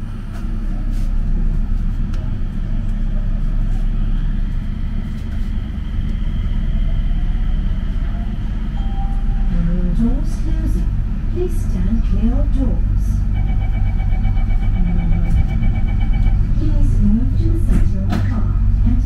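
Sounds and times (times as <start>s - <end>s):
light-rail car low rumble: 0.0s - 19.0s
faint high whine: 6.5s - 9.8s.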